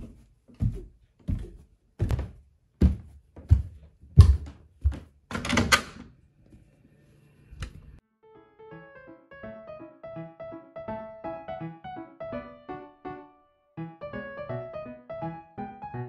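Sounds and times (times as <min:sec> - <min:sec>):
foot scuffing on stairs: 0:00.0 - 0:05.2
footsteps on wooden stairs: 0:00.0 - 0:05.2.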